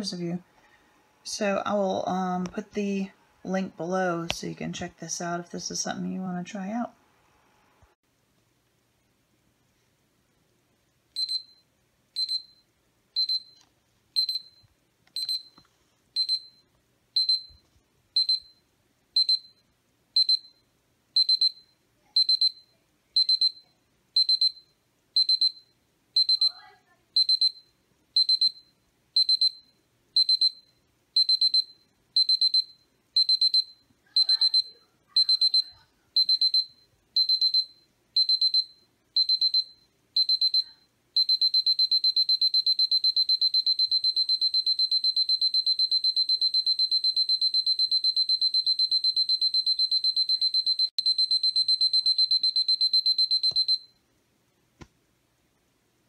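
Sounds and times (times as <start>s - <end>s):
digital alarm clock beeping: 11.2s - 11.6s, 12.2s - 12.6s, 13.2s - 13.6s, 14.2s - 14.6s, 15.2s - 15.6s, 16.2s - 16.6s, 17.2s - 17.6s, 18.2s - 18.6s, 19.2s - 19.6s, 20.2s - 26.6s, 27.2s - 54.0s.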